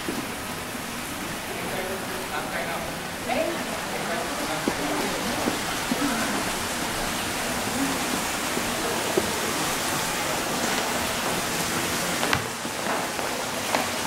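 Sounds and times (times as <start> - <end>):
steady lobby hiss: 0.0 - 14.0
faint distant voices: 1.2 - 14.0
footsteps on stairs: 2.8 - 14.0.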